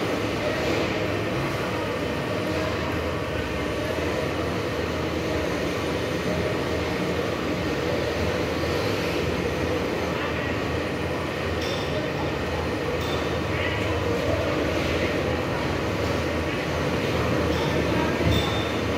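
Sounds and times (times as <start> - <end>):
steady mechanical drone: 0.0 - 18.9.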